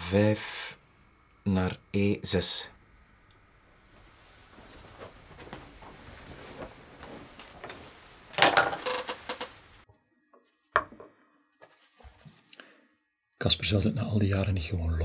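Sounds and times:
soft rustling: 0:03.8 - 0:09.8.

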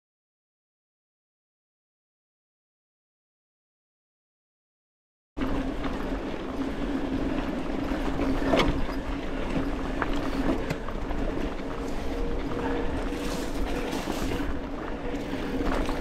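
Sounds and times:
bike rattling and knocking: 0:05.4 - 0:16.0
tyres on dirt and stones: 0:05.4 - 0:16.0.

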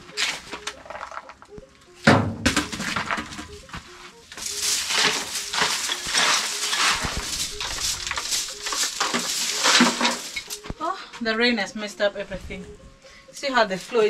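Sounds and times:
broom sweeping earth floor: 0:04.0 - 0:10.6.

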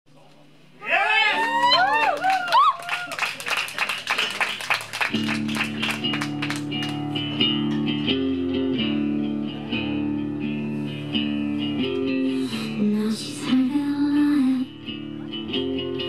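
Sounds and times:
audience clapping: 0:01.3 - 0:07.4
rock band guitar and bass chords: 0:05.1 - 0:16.0.

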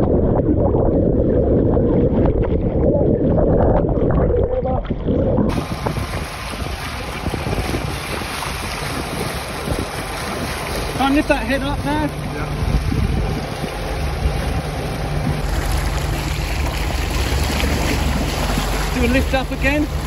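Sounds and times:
muffled churning water underwater: 0:00.0 - 0:20.0
water rushing along boat: 0:00.0 - 0:20.0
wind hiss on microphone: 0:05.5 - 0:10.8.

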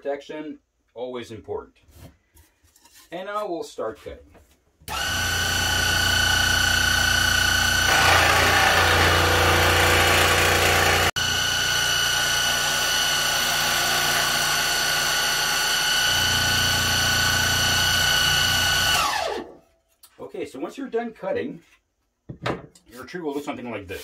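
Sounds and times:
scroll saw whining: 0:04.9 - 0:19.6.

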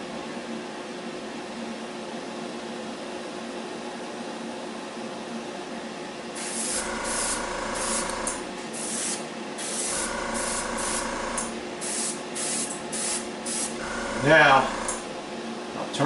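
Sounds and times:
steady hum: 0:06.3 - 0:16.0
airbrush spraying hissing bursts: 0:06.4 - 0:14.2.

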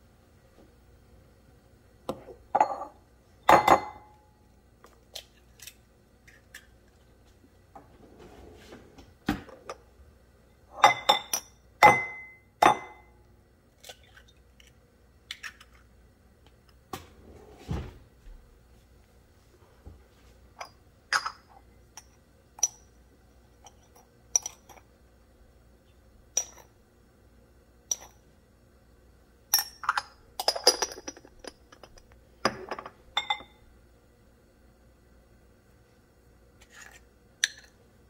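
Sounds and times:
light ceramic clinks: 0:02.6 - 0:04.1, 0:10.8 - 0:13.1, 0:26.4 - 0:26.7, 0:29.5 - 0:33.6.

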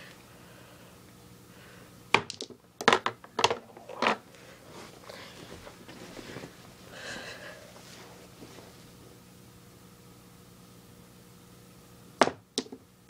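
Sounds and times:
pool balls clacking: 0:02.2 - 0:04.2, 0:12.2 - 0:12.8
pool balls rolling: 0:02.2 - 0:06.8.

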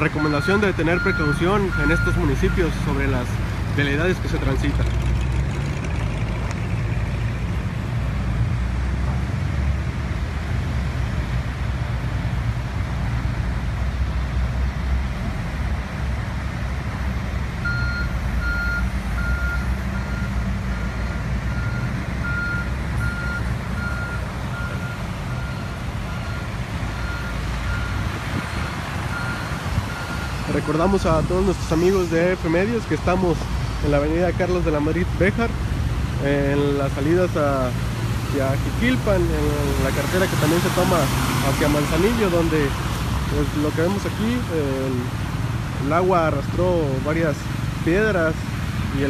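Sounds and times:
traffic engines rumbling: 0:00.0 - 0:49.0
reversing alarm beeping: 0:00.1 - 0:02.8, 0:17.6 - 0:30.8.

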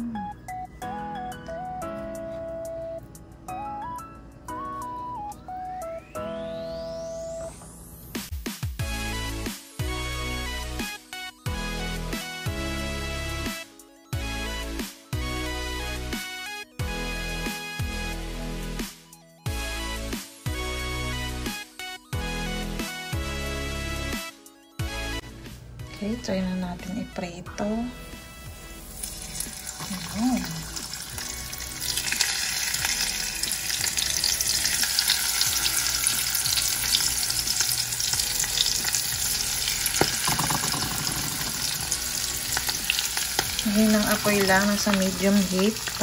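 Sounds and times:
fish frying in hot oil: 0:28.8 - 0:46.0.

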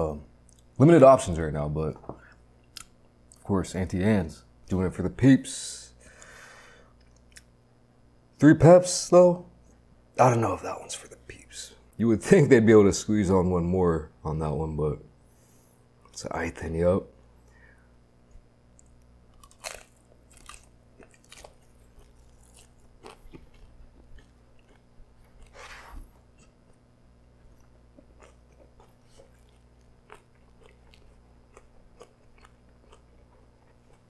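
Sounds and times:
person chewing with crunches: 0:07.0 - 0:07.5, 0:18.3 - 0:34.0.

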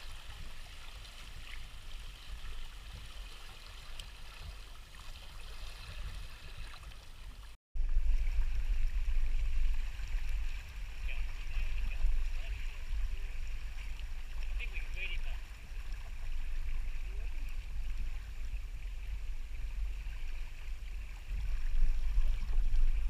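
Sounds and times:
water rushing past a hull: 0:00.0 - 0:23.0
wind rumble on microphone: 0:00.0 - 0:23.0.

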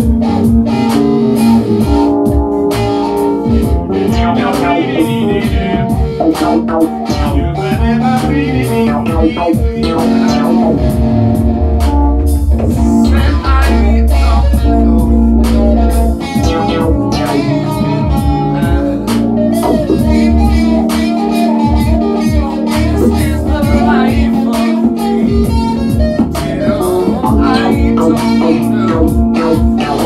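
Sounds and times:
deep bass: 0:00.0 - 0:30.0
drum machine beat: 0:00.0 - 0:30.0
electric guitar lead lines: 0:00.0 - 0:30.0
synthesizer chords: 0:00.0 - 0:30.0.

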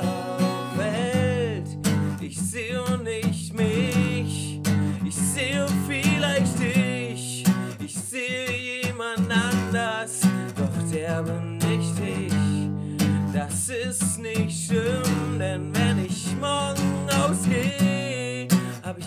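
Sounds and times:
man singing: 0:00.0 - 0:19.0
strummed acoustic guitar: 0:00.0 - 0:19.0.

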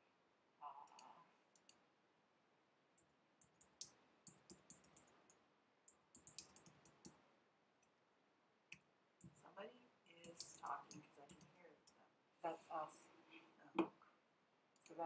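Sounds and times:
computer mouse and keyboard clicking: 0:03.0 - 0:07.2, 0:10.2 - 0:11.6.

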